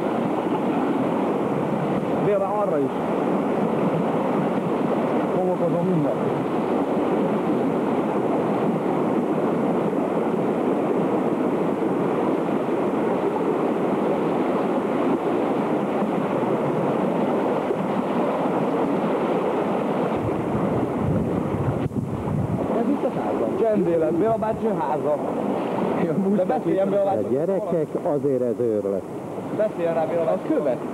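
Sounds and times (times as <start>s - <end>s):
floodwater rushing: 0.0s - 30.9s.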